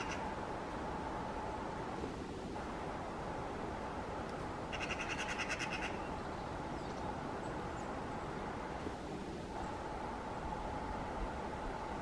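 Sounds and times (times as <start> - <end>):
bird trilling: 0.0 - 0.3, 4.7 - 6.1
steady background noise: 0.0 - 12.0.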